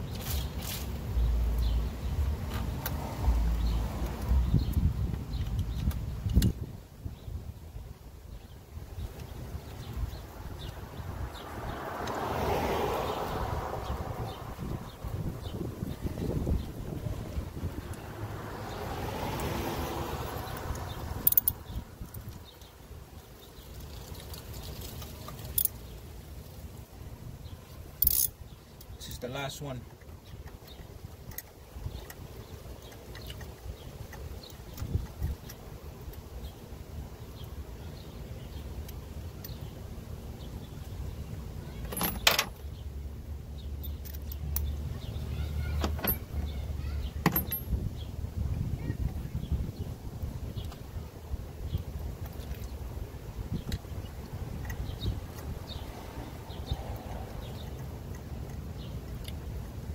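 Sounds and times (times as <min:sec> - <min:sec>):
wind rumbling on microphone: 0:00.0 - 0:25.3, 0:46.1 - 0:59.9.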